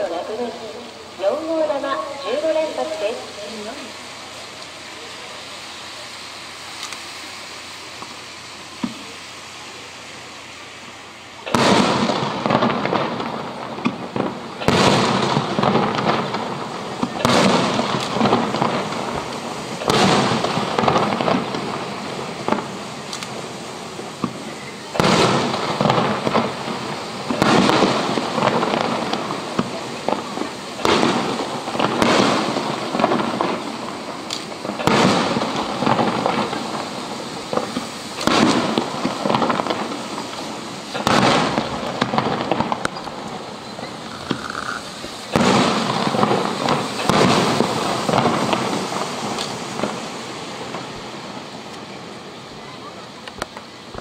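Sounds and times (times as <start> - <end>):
firework shells booming: 11.3 - 52.4.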